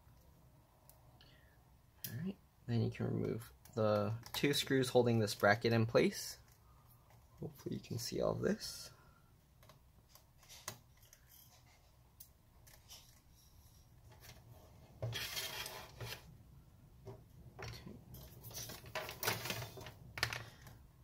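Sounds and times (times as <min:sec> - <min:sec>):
rustling scrape: 0:12.8 - 0:16.3.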